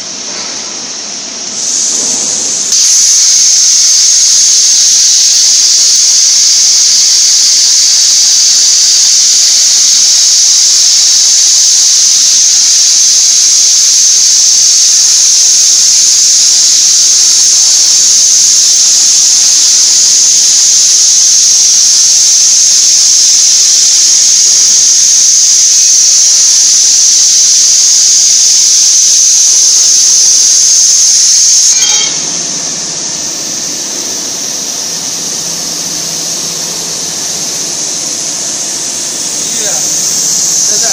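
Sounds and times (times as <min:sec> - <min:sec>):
plasma torch hissing: 0:01.5 - 0:32.0, 0:37.2 - 0:40.9
background noise: 0:28.6 - 0:40.9.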